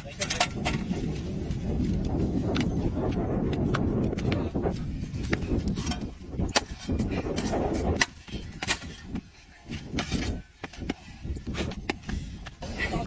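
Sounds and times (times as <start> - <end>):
low rumbling noise: 0.0 - 13.0
pickaxes striking dried mud: 5.2 - 9.2.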